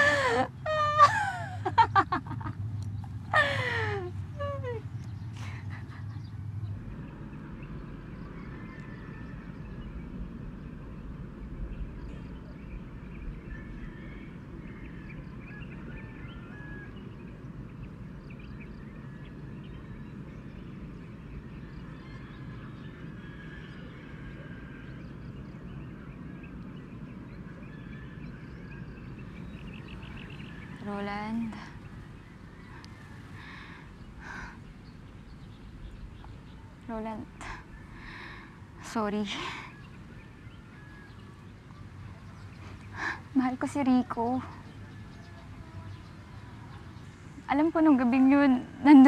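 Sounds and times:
low background rumble: 0.0s - 49.0s.

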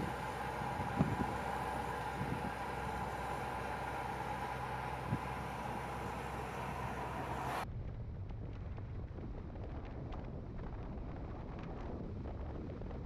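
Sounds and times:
wind noise on microphone: 0.0s - 4.4s, 5.0s - 6.0s, 7.6s - 13.0s
vehicle rumble: 0.0s - 12.9s.

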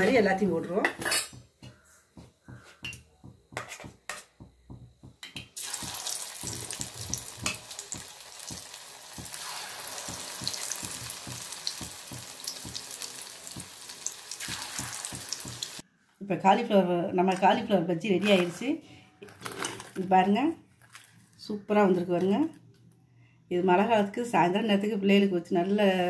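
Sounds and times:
batter deep-frying in oil: 5.6s - 15.8s.

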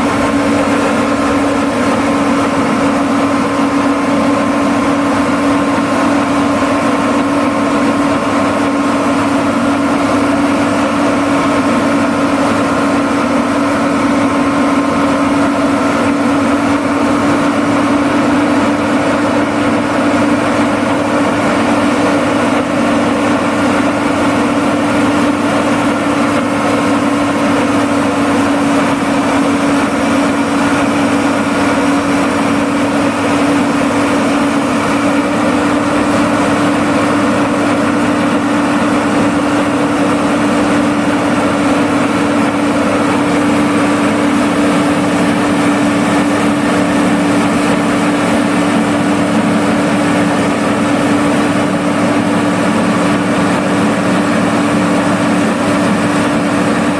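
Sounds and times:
machine engine humming steadily: 0.0s - 56.9s.

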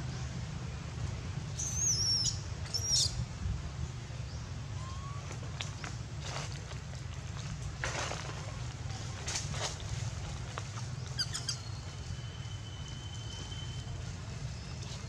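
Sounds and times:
high-pitched squeaky calls: 11.2s - 13.7s.

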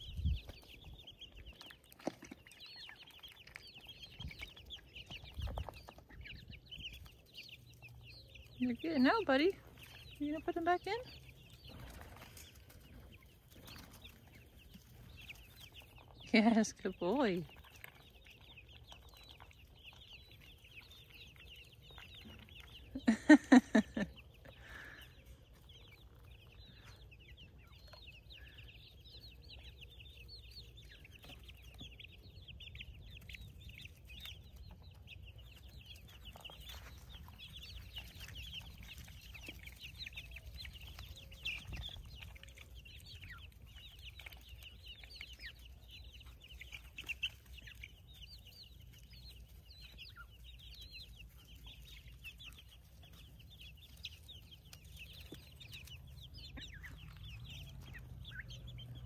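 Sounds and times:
chicks peeping: 0.0s - 59.0s.

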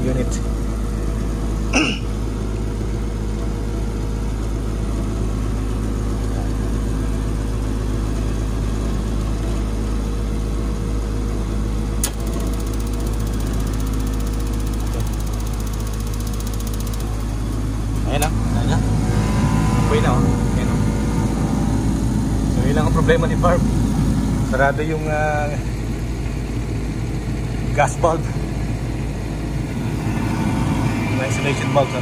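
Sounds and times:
heater motor hum: 0.0s - 32.0s
sharp click: 12.0s - 13.4s.

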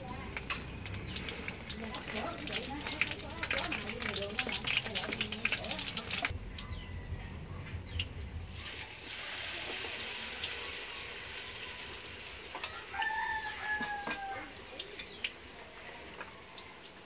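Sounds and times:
oil sizzling in a wok: 0.0s - 6.4s, 8.4s - 17.0s
rooster crowing: 6.3s - 7.6s, 12.5s - 14.6s.

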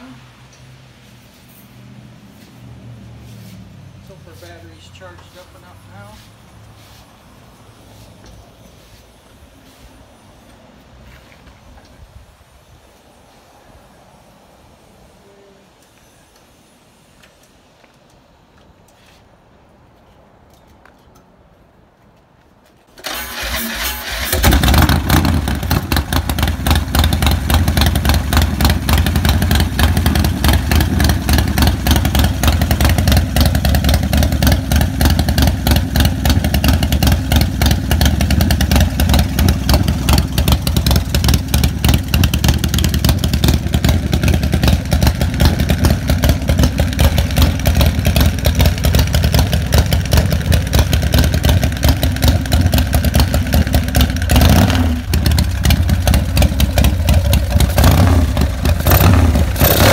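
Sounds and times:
motorcycle engine running: 24.2s - 59.9s.

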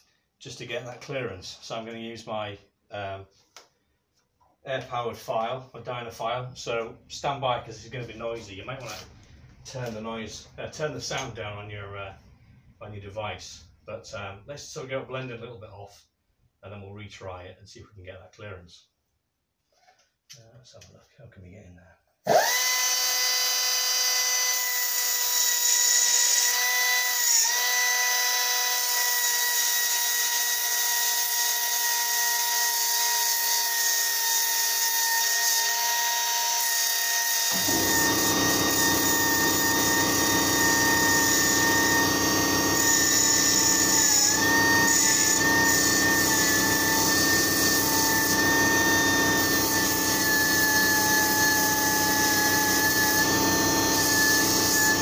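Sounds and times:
air belt file whining: 37.4s - 55.0s
belt grinding metal: 37.5s - 55.0s.

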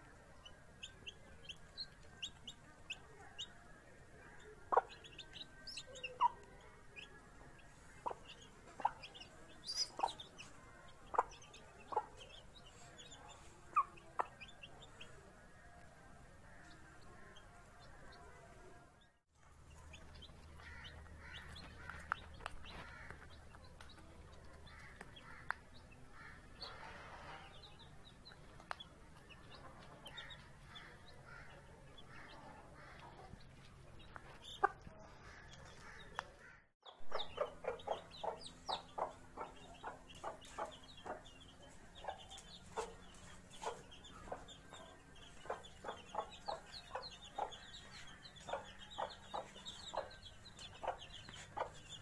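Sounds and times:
chicks peeping: 0.1s - 18.6s, 19.4s - 52.0s
hen clucking: 4.4s - 15.1s, 36.9s - 52.0s.

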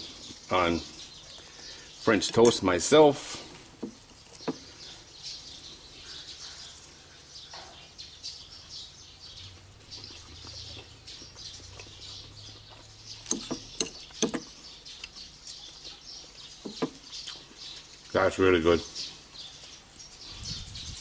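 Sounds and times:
birds chirping: 0.0s - 21.0s
sharp clicks: 13.2s - 15.6s.

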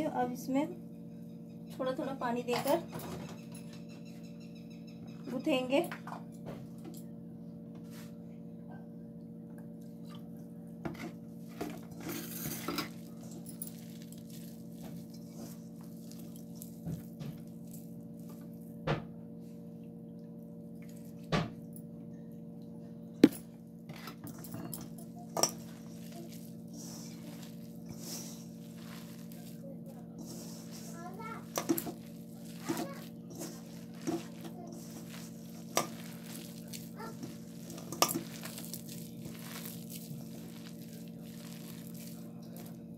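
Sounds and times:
low hum: 0.0s - 42.9s
soft rustling of mixing: 9.5s - 42.9s
knocks and clinks against bowl: 23.2s - 26.6s, 31.4s - 40.6s.

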